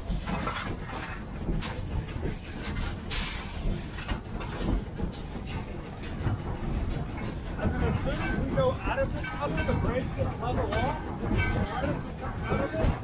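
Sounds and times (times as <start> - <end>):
steam locomotive rumble and rattle: 0.0 - 13.0
steam hiss bursts: 1.6 - 4.0.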